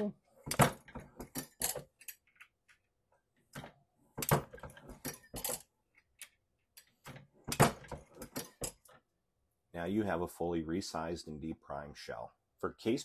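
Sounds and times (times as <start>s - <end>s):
brass cases clinking on metal press: 4.5s - 5.7s.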